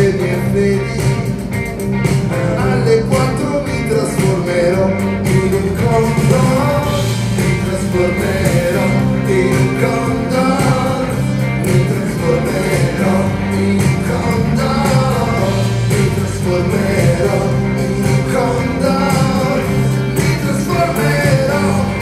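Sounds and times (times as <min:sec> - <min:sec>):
acoustic guitar: 0:00.0 - 0:22.0
drums keeping a steady beat: 0:00.0 - 0:22.0
electric guitar: 0:00.0 - 0:22.0
keyboards: 0:00.0 - 0:22.0.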